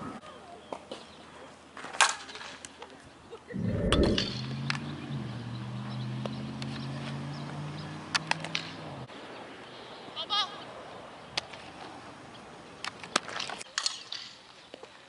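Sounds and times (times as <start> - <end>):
low rumble: 3.5 - 4.5.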